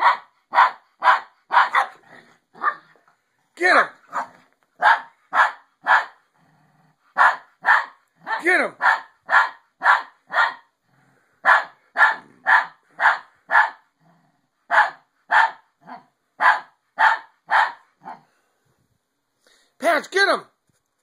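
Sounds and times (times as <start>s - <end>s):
small dog barking: 0.0s - 3.0s, 4.1s - 6.2s, 7.2s - 10.7s, 11.4s - 13.8s, 14.7s - 18.3s.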